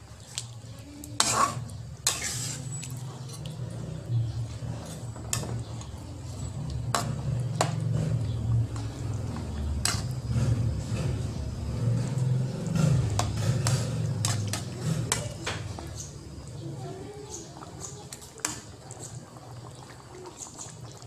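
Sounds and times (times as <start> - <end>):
spatula scraping a pan: 1.1 - 16.2.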